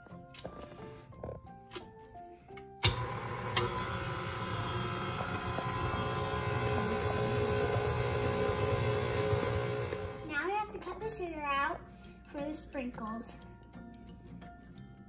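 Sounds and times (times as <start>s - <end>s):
stand mixer motor humming: 2.8s - 10.3s.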